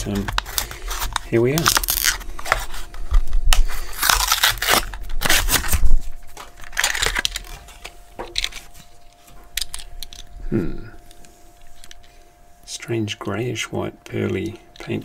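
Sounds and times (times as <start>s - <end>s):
plastic packaging tearing: 0.0s - 8.7s
plastic crackling: 0.0s - 10.3s.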